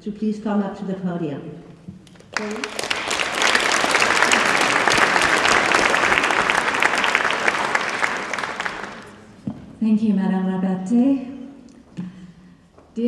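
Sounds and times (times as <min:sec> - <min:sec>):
audience applauding: 0:02.1 - 0:09.3.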